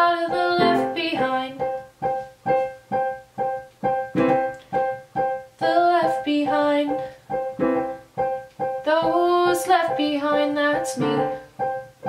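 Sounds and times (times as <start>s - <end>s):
woman singing: 0.0s - 1.8s, 5.6s - 7.2s, 8.8s - 11.5s
piano chords: 0.0s - 12.0s.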